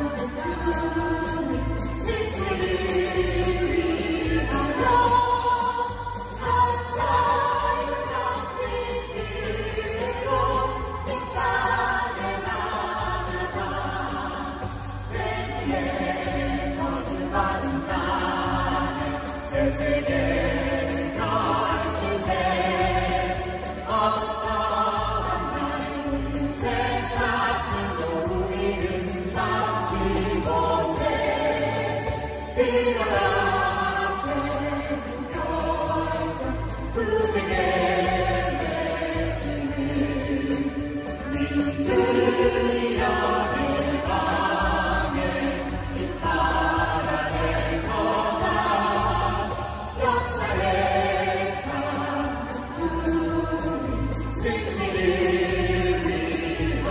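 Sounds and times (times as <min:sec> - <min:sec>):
group singing: 0:00.0 - 0:56.9
musical accompaniment with bass: 0:00.0 - 0:56.9.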